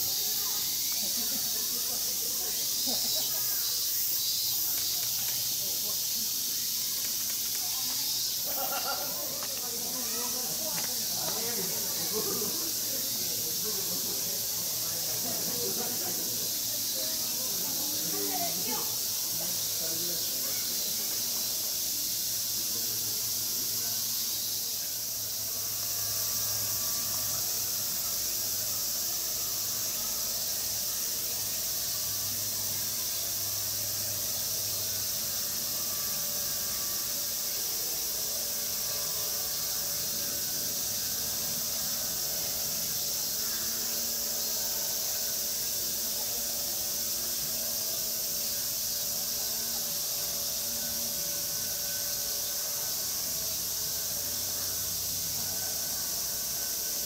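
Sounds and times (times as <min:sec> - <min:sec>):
high-pitched hiss: 0:00.0 - 0:57.0.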